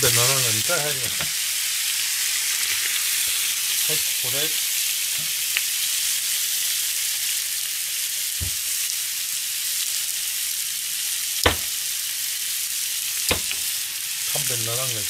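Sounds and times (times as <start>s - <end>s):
chicken frying in a pan: 0.0s - 15.0s
knife knocking on plastic board: 11.5s - 11.7s, 13.3s - 13.6s.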